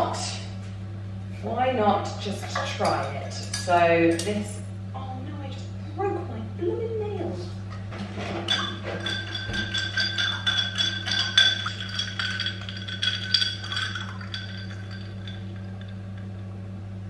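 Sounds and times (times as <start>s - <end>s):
steady low hum: 0.0s - 17.0s
ice clinking in a glass: 8.5s - 16.4s.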